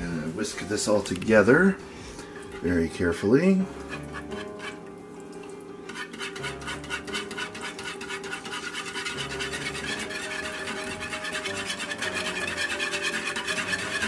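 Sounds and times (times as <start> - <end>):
wire whisk scraping a plastic bowl: 3.6 - 4.8, 5.9 - 14.0.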